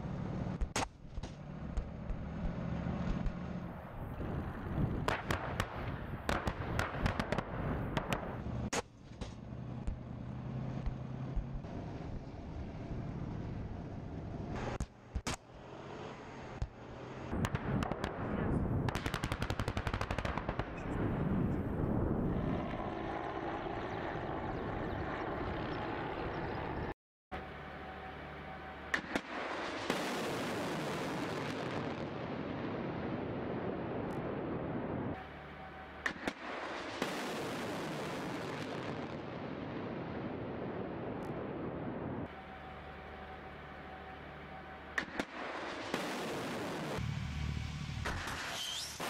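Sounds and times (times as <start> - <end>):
sharp cracks: 5.0 - 10.0, 16.6 - 20.9, 36.0 - 39.4.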